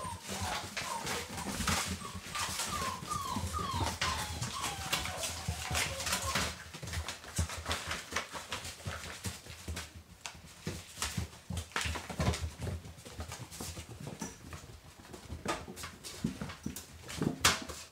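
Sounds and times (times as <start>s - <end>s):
puppies whimpering: 0.0s - 7.0s
paws scuffling: 0.0s - 17.9s.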